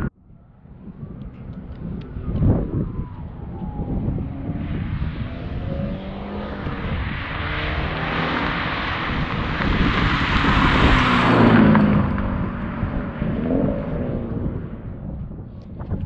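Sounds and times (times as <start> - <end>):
car exhaust passing by: 0.9 - 15.5.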